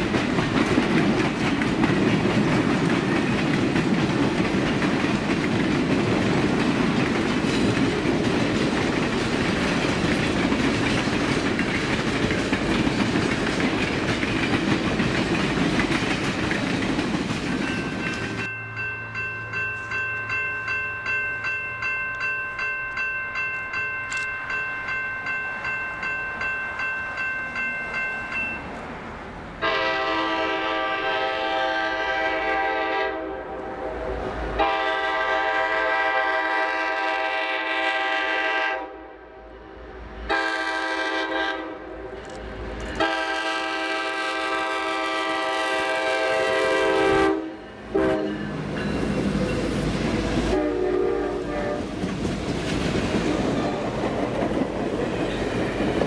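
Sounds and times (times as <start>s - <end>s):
train rumble and clattering wheels: 0.0s - 38.9s, 39.8s - 56.0s
crossing bell ringing: 17.3s - 28.9s, 46.5s - 51.3s
locomotive air horn: 29.6s - 42.2s, 43.0s - 48.4s, 50.4s - 52.0s.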